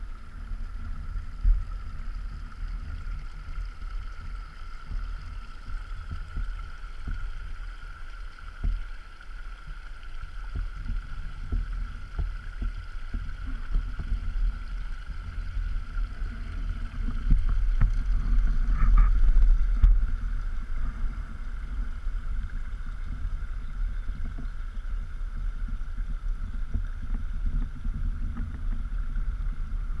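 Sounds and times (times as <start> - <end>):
wind rumble on microphone: 0.0 - 30.0
water knocking against kayak hull: 4.0 - 8.9, 9.6 - 20.8.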